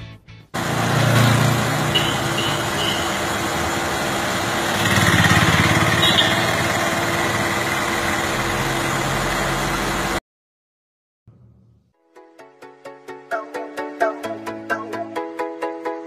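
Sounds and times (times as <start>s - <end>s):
small engine running: 0.6s - 10.2s.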